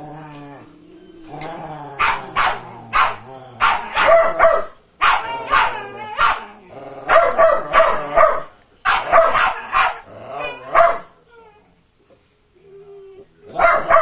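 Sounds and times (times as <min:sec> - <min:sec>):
dogs barking in play: 0:01.2 - 0:11.3, 0:13.5 - 0:14.0.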